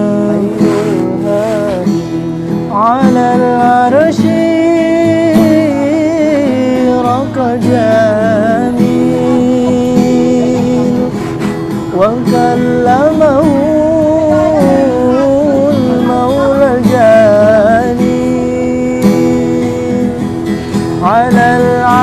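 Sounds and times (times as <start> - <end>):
person singing long held notes: 0.0 - 2.1
acoustic guitar: 0.0 - 22.0.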